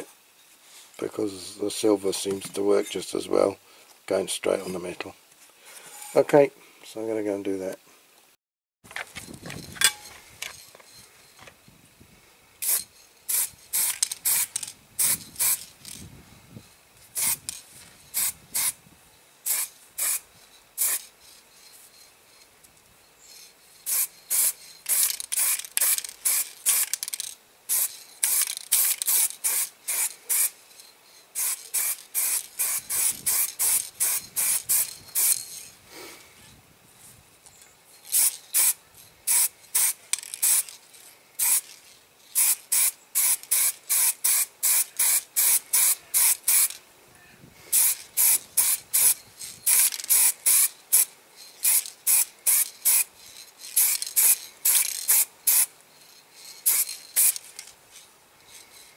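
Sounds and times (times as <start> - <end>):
spray paint can hissing: 12.6 - 15.7, 17.2 - 18.8, 19.4 - 21.4, 23.8 - 30.6, 31.3 - 35.5, 38.1 - 40.8, 41.4 - 46.8, 47.7 - 55.7, 56.4 - 57.7.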